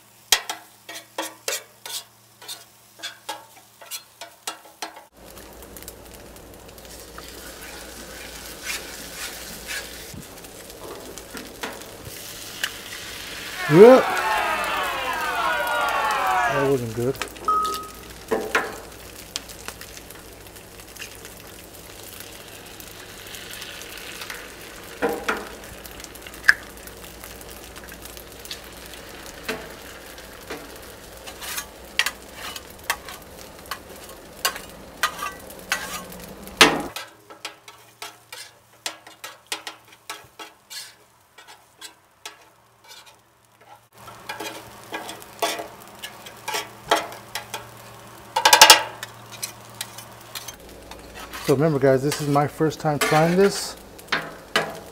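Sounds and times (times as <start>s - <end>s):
food sizzling on a griddle: 0.0s - 54.9s
metal spatulas scraping and tapping: 0.3s - 5.1s, 34.5s - 36.1s, 37.0s - 47.7s, 51.2s - 52.4s, 53.0s - 53.4s.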